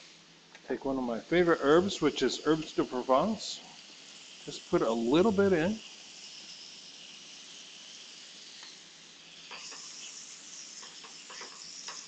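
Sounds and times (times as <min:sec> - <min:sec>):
meat sizzling in a pan: 0:01.1 - 0:12.0
utensil tapping in a pan: 0:10.8 - 0:12.0.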